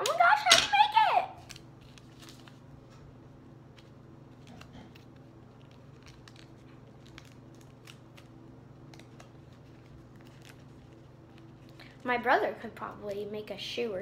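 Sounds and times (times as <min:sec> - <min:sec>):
steady low hum: 0:00.0 - 0:14.0
paper crinkling and clicking: 0:01.4 - 0:03.1, 0:03.7 - 0:12.0.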